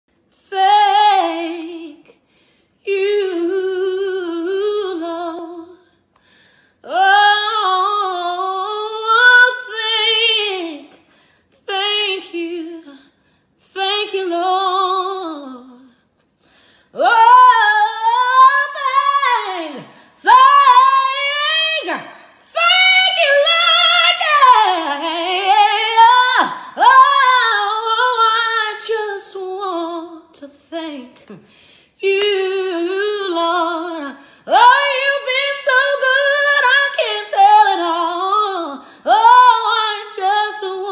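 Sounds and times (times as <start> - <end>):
woman singing unaccompanied: 0.4 - 2.1, 2.8 - 5.9, 11.7 - 15.9, 17.0 - 31.4, 32.0 - 40.9.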